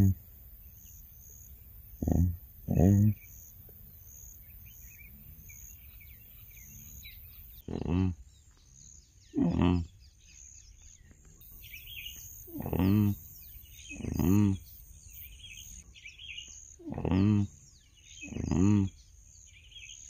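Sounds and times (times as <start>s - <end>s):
pig grunting: 0.0s - 0.2s, 1.9s - 3.8s, 7.6s - 8.2s, 9.3s - 10.0s, 12.5s - 13.3s, 13.9s - 14.7s, 16.8s - 17.6s, 18.2s - 19.0s
small birds chirping: 0.0s - 20.0s.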